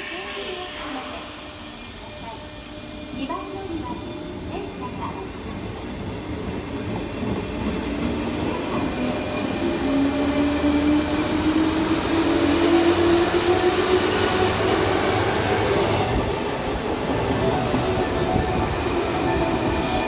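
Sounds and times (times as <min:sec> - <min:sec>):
train wheels on rails: 0:00.0 - 0:20.0.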